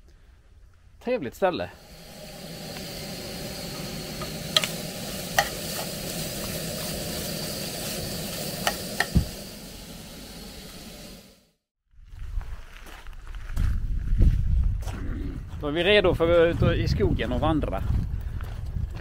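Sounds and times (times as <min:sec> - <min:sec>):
meat sizzling in a frying pan: 0:01.8 - 0:11.2.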